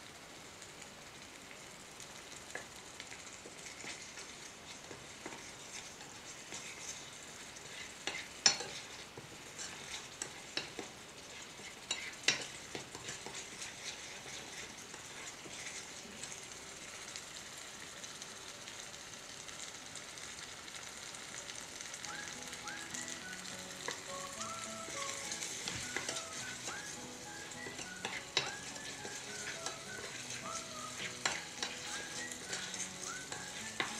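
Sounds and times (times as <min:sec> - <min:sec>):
gravy sizzling in a frying pan: 0:00.0 - 0:33.9
spoon clinking against pan: 0:08.0 - 0:08.8, 0:24.9 - 0:33.9.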